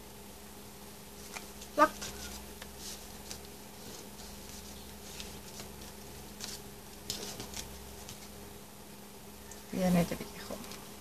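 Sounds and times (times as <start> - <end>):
steady low hum: 0.0 - 11.0
paper rustling and ticking: 1.2 - 8.4.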